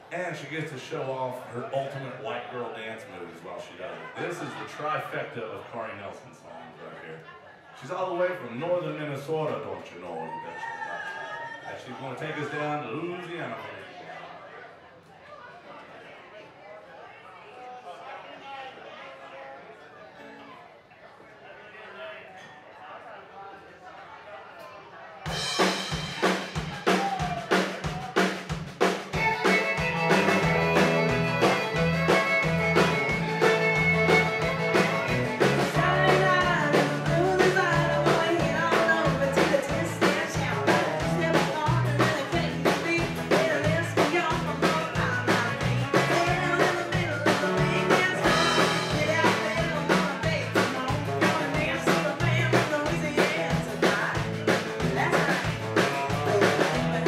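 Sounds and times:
country band playing: 25.3s - 57.0s
fiddle: 29.1s - 39.7s.

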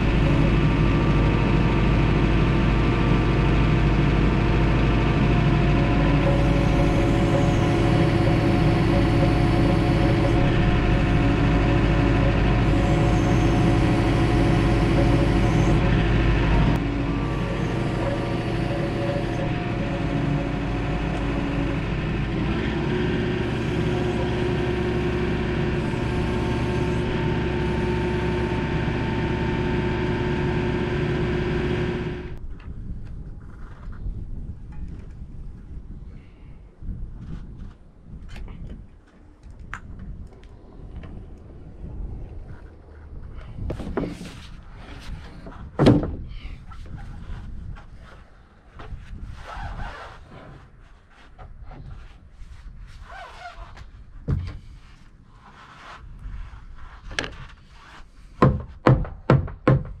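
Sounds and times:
tractor diesel engine running: 0.0s - 32.4s.

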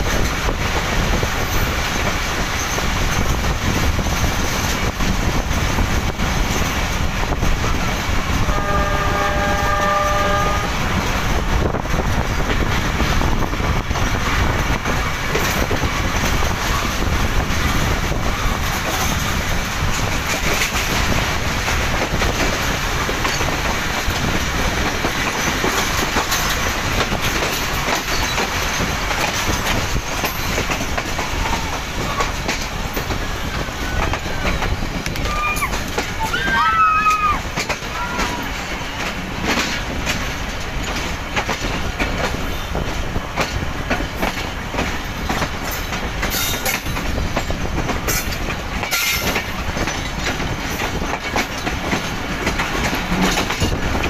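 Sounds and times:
clickety-clack over rail joints: 0.0s - 54.0s
train wheels rumbling on rails: 0.0s - 54.0s
locomotive horn: 8.3s - 11.0s, 37.8s - 39.0s.

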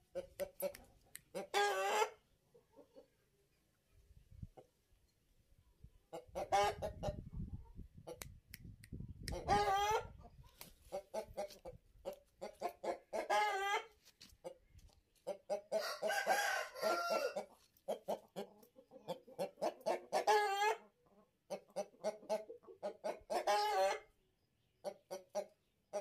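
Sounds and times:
rooster clucking: 0.0s - 3.2s, 6.1s - 8.3s, 9.2s - 24.2s, 24.8s - 26.0s
rooster crowing: 15.8s - 17.4s.

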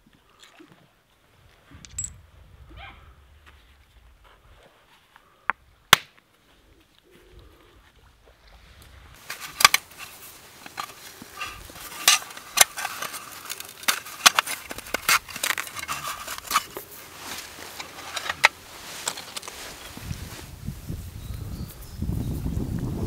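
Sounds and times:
stone clicking and scraping: 9.2s - 16.9s, 17.7s - 19.5s.

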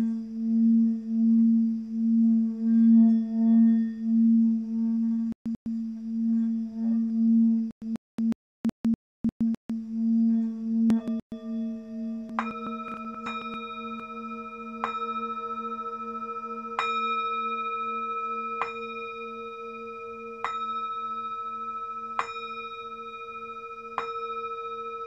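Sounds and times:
singing bowl ringing: 10.9s - 25.0s.

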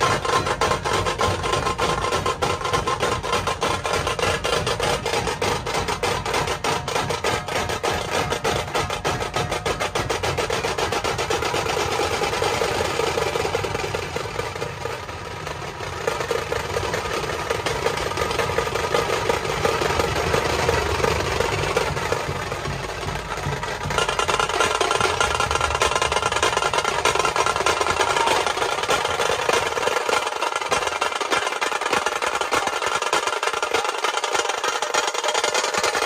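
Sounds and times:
fast drum roll: 0.0s - 36.0s
drum ensemble playing: 17.2s - 36.0s.

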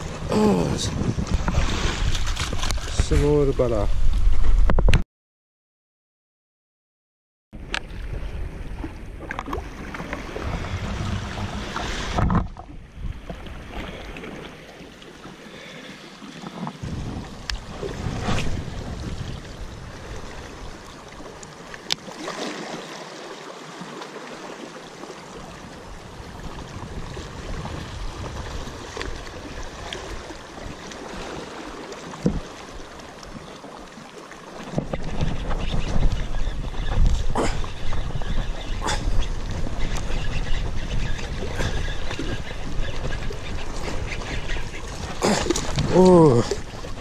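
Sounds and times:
sea water lapping on rocks: 0.0s - 3.8s, 9.2s - 25.8s, 26.5s - 47.0s
wind rumbling on microphone: 0.0s - 5.0s, 7.6s - 14.2s, 16.7s - 21.1s, 25.6s - 31.3s, 34.7s - 47.0s.

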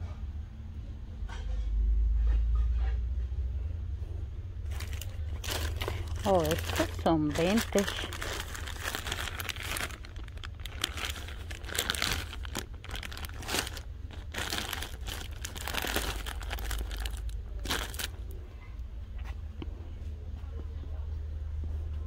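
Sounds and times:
steady low hum: 2.0s - 22.0s
plastic wrapping rustling: 4.6s - 18.3s.

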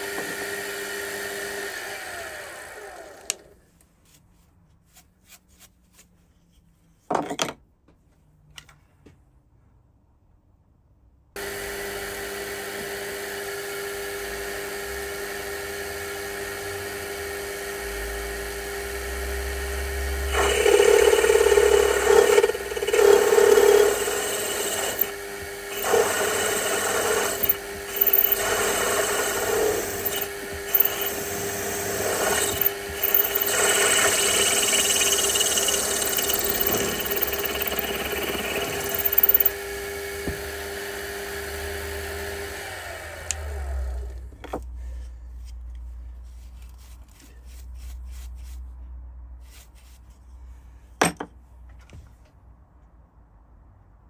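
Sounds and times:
drill cutting into metal: 11.4s - 40.0s
drilling machine motor humming: 11.4s - 40.2s.

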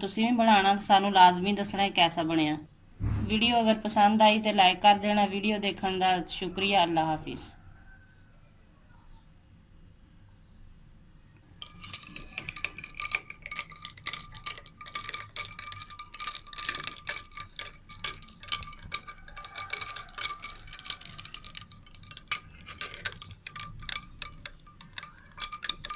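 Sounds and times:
spoon and ice clinking glass: 11.6s - 25.9s.

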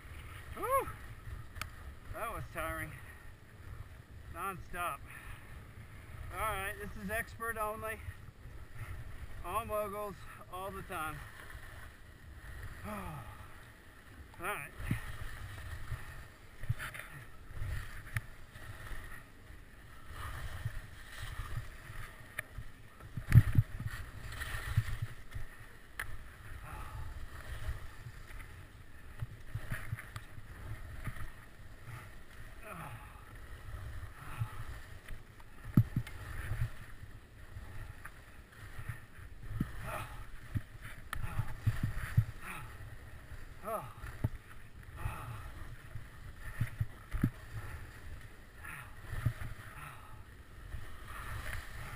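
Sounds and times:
skis scraping over moguls: 0.0s - 51.9s
wind on microphone: 20.0s - 25.6s, 38.7s - 50.0s
skis thumping on bumps: 20.2s - 26.6s, 34.0s - 51.9s.

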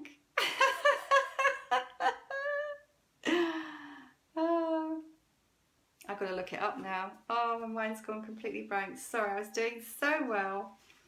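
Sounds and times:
woman laughing: 0.4s - 3.7s
woman sighing: 3.2s - 4.2s
woman humming: 4.4s - 5.1s.

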